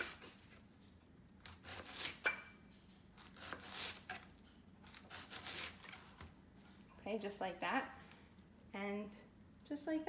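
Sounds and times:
knife slicing cabbage: 0:00.0 - 0:00.6, 0:01.4 - 0:02.4, 0:03.1 - 0:06.3.

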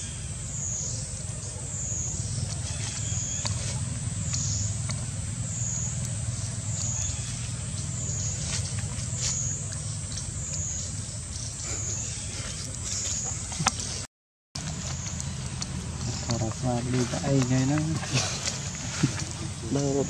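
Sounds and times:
low motor hum: 0:00.0 - 0:20.0
high whine dipping and rising: 0:14.6 - 0:20.0.

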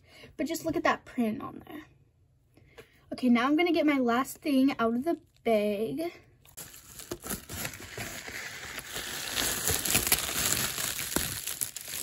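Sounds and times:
bubble mailer crinkling: 0:06.5 - 0:12.0.

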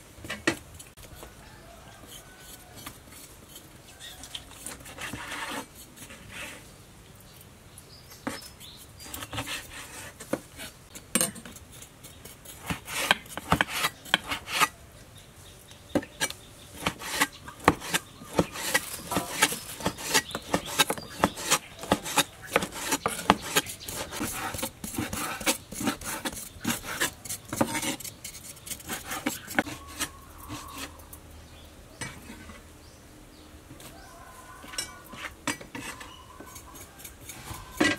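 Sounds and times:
knife scraping: 0:00.2 - 0:06.7, 0:08.1 - 0:14.8, 0:16.0 - 0:31.2, 0:32.0 - 0:32.7, 0:34.0 - 0:37.9.

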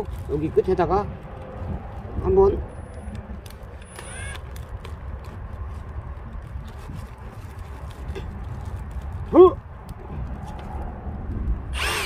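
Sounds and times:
plastic rustling and scraping: 0:00.0 - 0:11.0
steady low rumble: 0:00.0 - 0:12.0.

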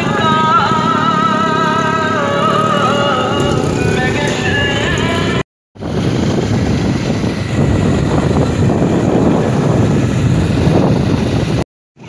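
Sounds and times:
motorcycle engine rumble: 0:00.0 - 0:12.0
wind buffeting microphone: 0:03.3 - 0:11.6.

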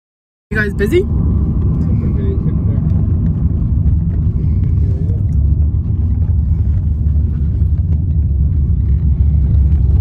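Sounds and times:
car driving rumble inside cabin: 0:00.5 - 0:10.0.

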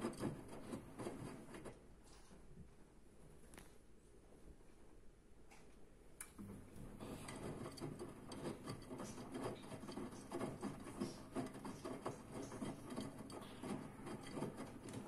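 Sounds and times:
washing machine drum motor hum: 0:00.0 - 0:01.7, 0:06.3 - 0:15.0.

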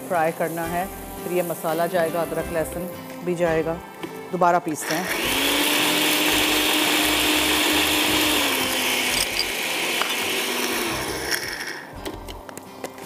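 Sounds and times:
blender motor grinding: 0:04.8 - 0:11.9.

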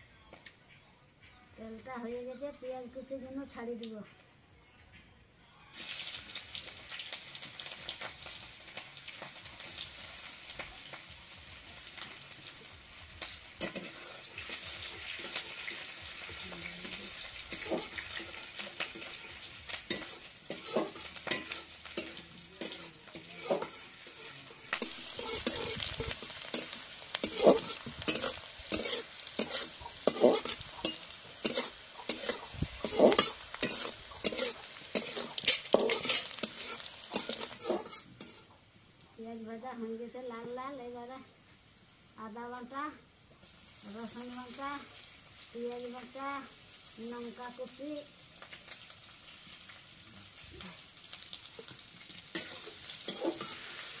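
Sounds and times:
onions sizzling in hot oil: 0:05.7 - 0:38.7, 0:41.5 - 0:54.0
spatula scraping pan: 0:13.6 - 0:38.5, 0:52.3 - 0:54.0.

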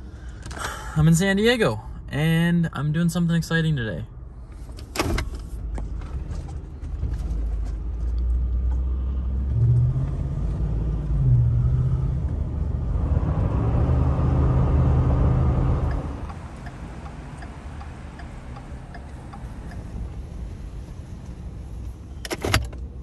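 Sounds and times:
truck engine hum and road rumble: 0:00.0 - 0:23.0.

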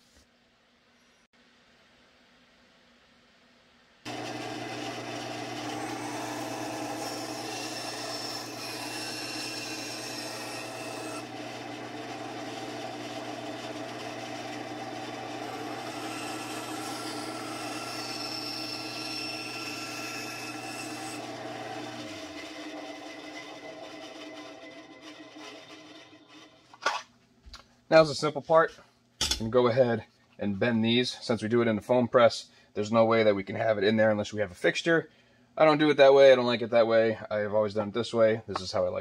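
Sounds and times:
bandsaw motor hum: 0:04.1 - 0:26.7.

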